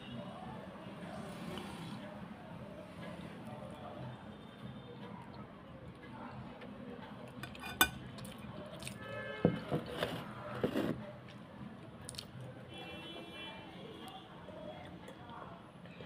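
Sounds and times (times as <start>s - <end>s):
fork clinking against ceramic bowl: 7.4s - 8.0s.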